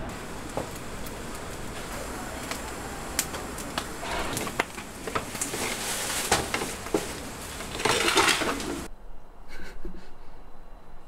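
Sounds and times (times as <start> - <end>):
steady background hum: 0.0 - 11.0
rustling: 0.1 - 8.9.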